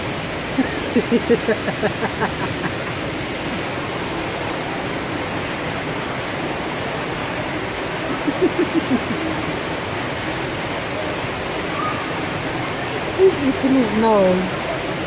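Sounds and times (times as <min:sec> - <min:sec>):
steady rushing noise: 0:00.0 - 0:13.3.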